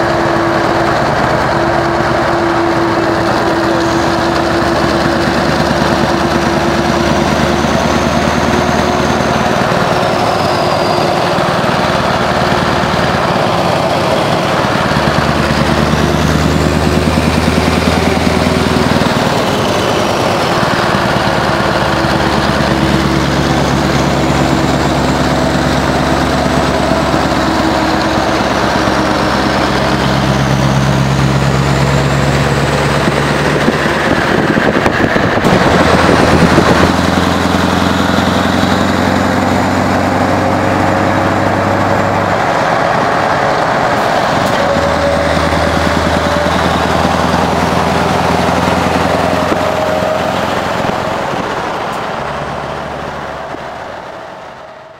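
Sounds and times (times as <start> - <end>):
truck diesel engine drone: 0.0 - 54.9
tyre and wind rush: 31.7 - 39.0.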